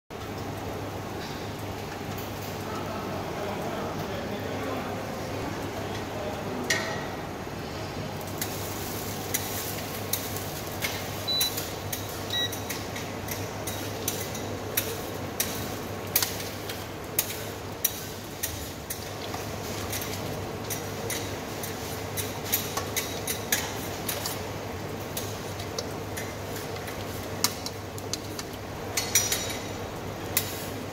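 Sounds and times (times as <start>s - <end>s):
steady background hum: 0.1s - 30.9s
utensils knocking against pots: 25.2s - 30.5s.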